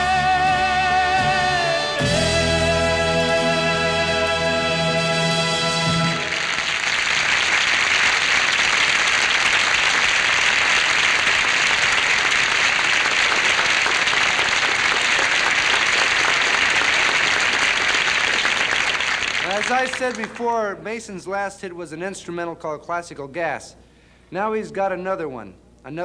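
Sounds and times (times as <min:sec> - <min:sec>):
audience applauding: 0:05.6 - 0:20.5.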